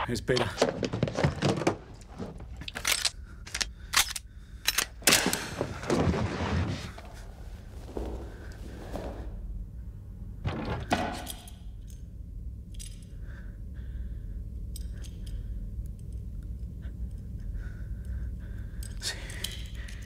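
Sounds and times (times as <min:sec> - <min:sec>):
low steady hum: 0:00.0 - 0:20.0
pistol metallic clicks and clinks: 0:02.6 - 0:05.2, 0:12.7 - 0:13.1, 0:14.7 - 0:16.3.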